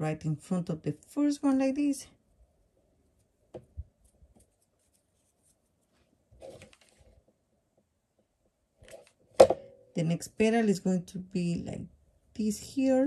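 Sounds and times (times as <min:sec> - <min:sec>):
soft rustle: 0:03.1 - 0:07.4.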